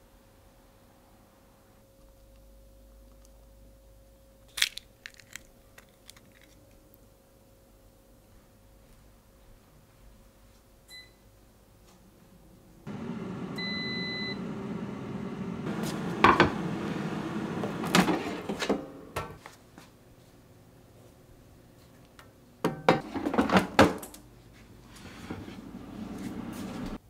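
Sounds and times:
air fryer fan hum: 12.9s - 19.4s, 22.9s - 27.0s
short beep: 13.6s - 14.5s.

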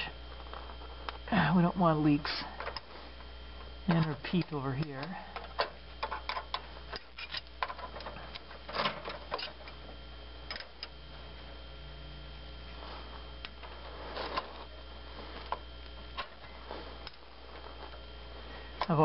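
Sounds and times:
low hum: 0.0s - 19.0s
wrenches clicking and scraping: 3.9s - 7.9s.

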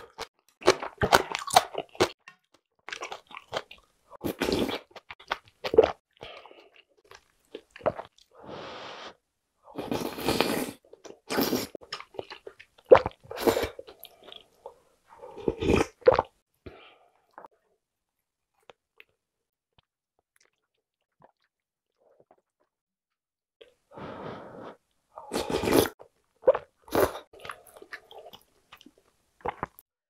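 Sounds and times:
slurping and chewing noodles: 9.8s - 16.3s, 24.4s - 29.8s.

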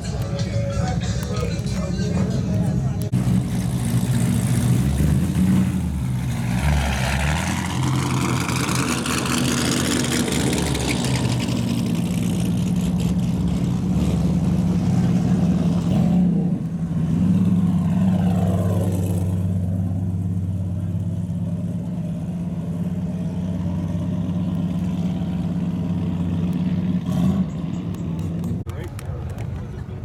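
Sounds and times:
car engine rumbling: 0.0s - 30.0s.

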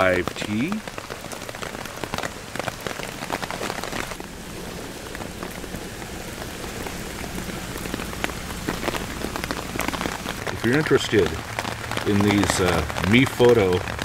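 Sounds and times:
rain on a tarp: 0.0s - 14.0s
low steady hum: 4.1s - 13.2s.

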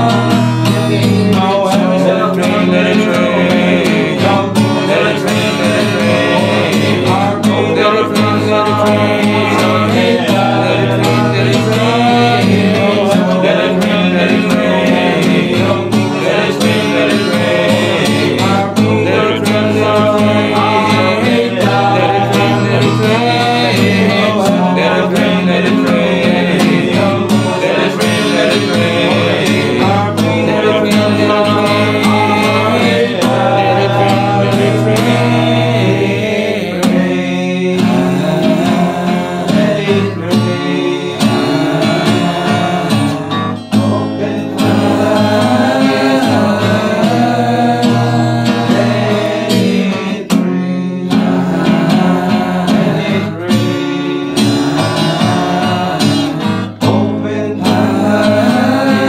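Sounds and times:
guitar accompaniment: 0.0s - 59.0s
men's choir singing: 0.0s - 59.0s.

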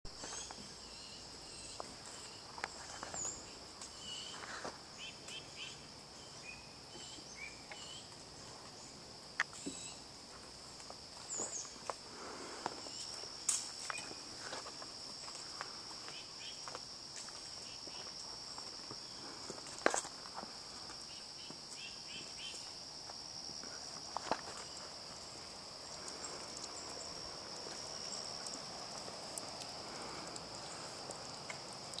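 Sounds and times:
insects droning: 0.1s - 32.0s
footsteps: 9.4s - 25.4s.

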